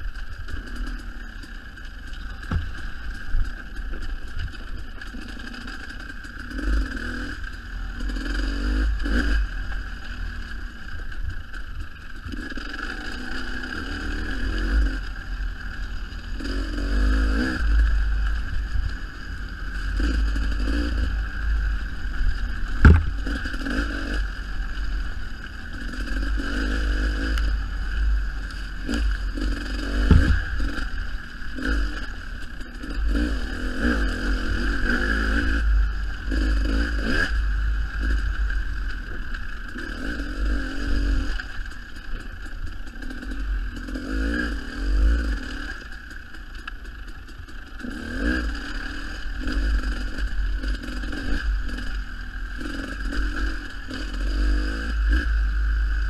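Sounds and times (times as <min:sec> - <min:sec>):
dirt bike engine revving: 0:00.0 - 0:46.3, 0:47.1 - 0:56.0
sharp knocks: 0:22.8 - 0:23.3, 0:30.1 - 0:30.5.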